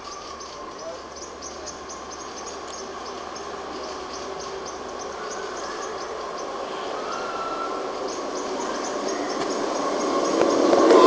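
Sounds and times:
faint high chirping: 0.0 - 10.7
outdoor background noise: 0.0 - 11.0.

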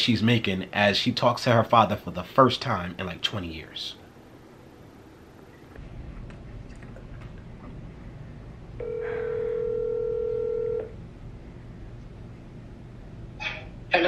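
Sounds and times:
phone ringback tone: 8.8 - 10.9.

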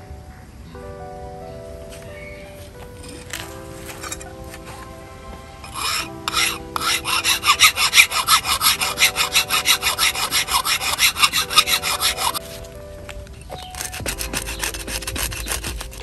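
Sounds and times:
hand tool rasping strokes: 3.1 - 4.9, 5.6 - 12.8, 13.4 - 16.0.

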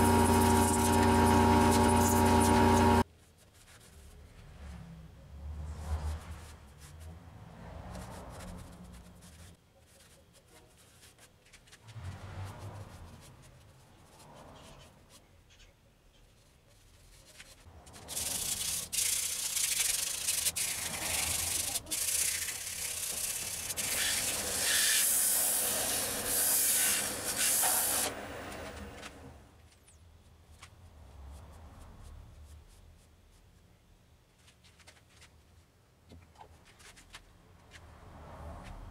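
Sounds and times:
rag rubbing spinning wood: 0.0 - 3.0, 18.0 - 29.0
loud friction hiss: 20.5 - 29.0.

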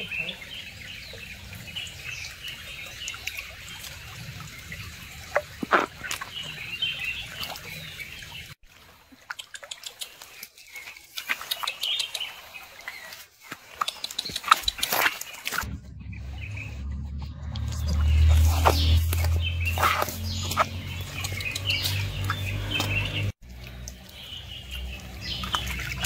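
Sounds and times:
creek water trickling: 0.0 - 26.0
splashes: 0.0 - 26.0
animal pattering and rustling: 9.4 - 15.7.

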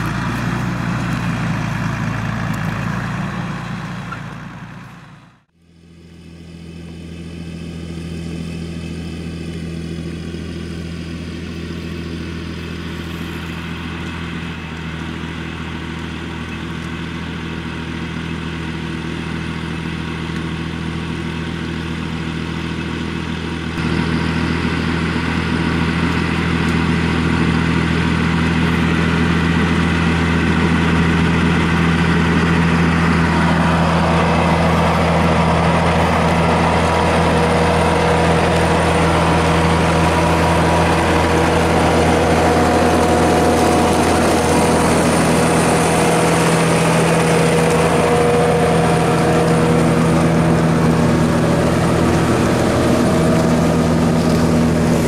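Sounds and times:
tractor diesel engine under load: 0.0 - 55.0
rough rushing noise: 32.1 - 55.0.

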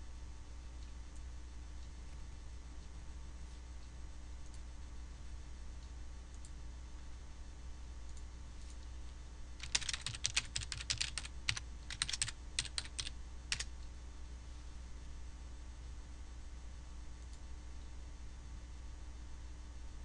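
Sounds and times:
steady low hum: 0.0 - 20.0
typing on computer keyboard: 9.6 - 13.7.

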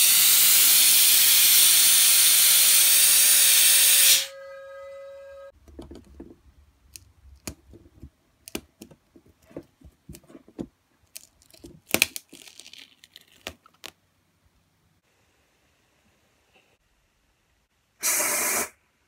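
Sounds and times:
glue strands crackling and snapping: 6.8 - 14.0.

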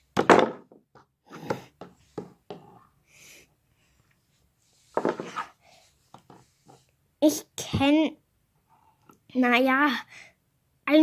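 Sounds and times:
plastic figurines knocking on wood: 0.2 - 1.6.

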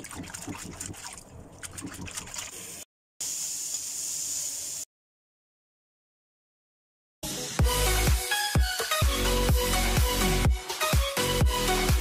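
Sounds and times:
water splashing: 0.0 - 2.8
food sizzling in a wok: 3.2 - 4.9.

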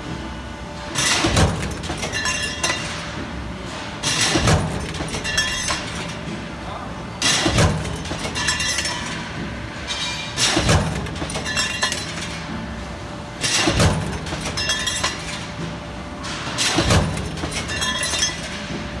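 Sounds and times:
punch press metal blows: 1.0 - 3.0, 4.0 - 6.1, 7.2 - 9.2, 10.0 - 12.4, 13.4 - 15.6, 16.4 - 18.8.

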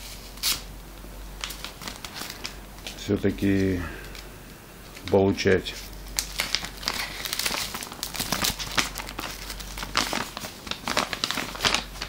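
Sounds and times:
paper crinkling and rustling: 1.4 - 4.2, 5.0 - 12.0
knife cutting paper envelope: 6.2 - 12.0.

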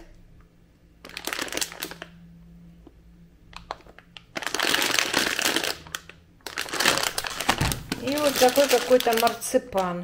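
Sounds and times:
plastic packaging crinkling: 1.0 - 2.2, 3.5 - 10.0.

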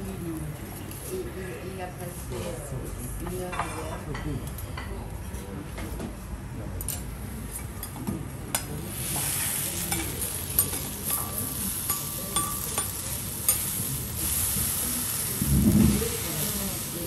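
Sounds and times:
steak sizzling on a griddle: 8.8 - 17.0.

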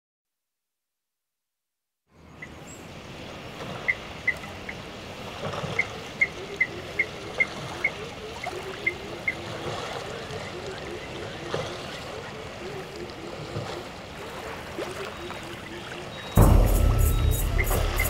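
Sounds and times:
outdoor waterside ambience: 2.1 - 18.0
short high chirp: 16.4 - 18.0.

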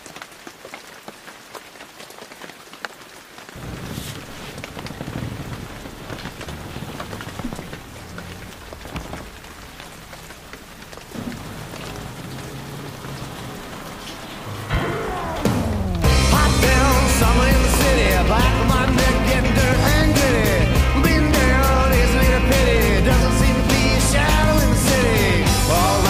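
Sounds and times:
vinyl record crackle and clicks: 0.0 - 26.0
low uneven rumble: 3.6 - 26.0
music: 14.7 - 26.0.

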